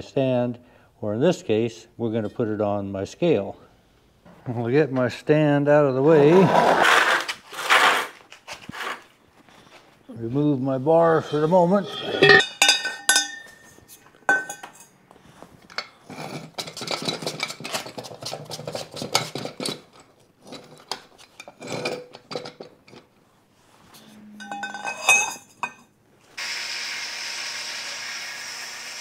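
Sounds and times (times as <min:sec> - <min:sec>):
steel bar scraping on metal hub: 0:10.9 - 0:14.9, 0:23.9 - 0:25.8
metal clatter: 0:11.0 - 0:14.9, 0:24.4 - 0:25.8.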